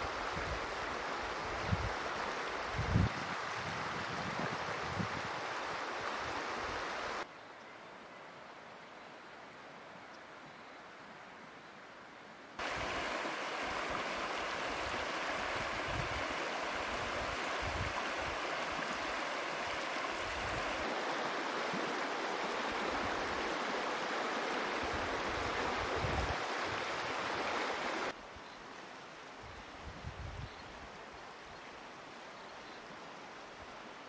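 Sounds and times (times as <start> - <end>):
river rushing over stones: 0.0 - 7.3, 12.6 - 28.2.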